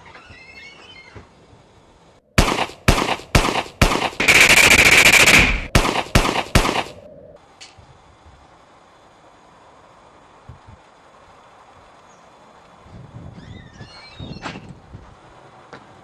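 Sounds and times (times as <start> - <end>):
automatic gunfire burst: 2.4 - 7.0
single gunshots: 2.4 - 7.0.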